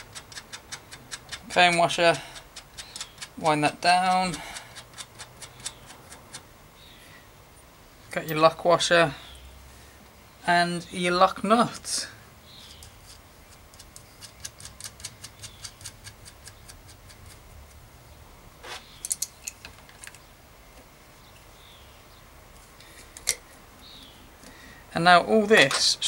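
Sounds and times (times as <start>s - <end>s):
sharp metal clicks: 0.0s - 6.5s, 12.7s - 17.8s.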